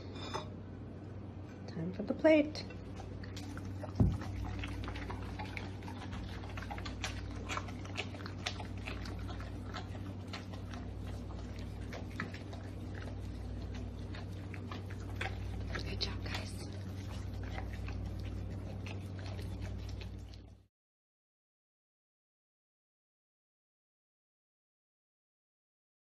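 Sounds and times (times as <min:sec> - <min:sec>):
dogs chewing from plate: 0:02.7 - 0:20.7.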